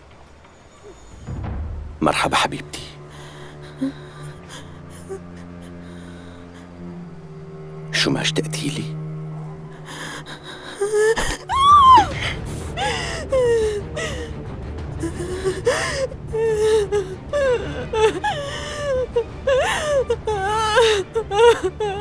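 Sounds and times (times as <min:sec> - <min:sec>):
low steady music underscore: 0:00.0 - 0:22.0
person gasping and whimpering: 0:09.8 - 0:14.4, 0:15.0 - 0:22.0.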